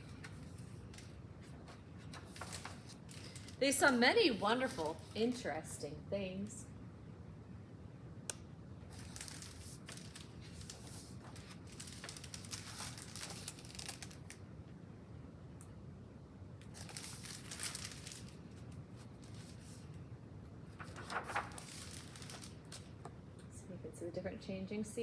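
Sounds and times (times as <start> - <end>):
book pages rustling: 0.0 - 3.6, 8.9 - 14.4, 16.6 - 20.0, 20.7 - 23.0.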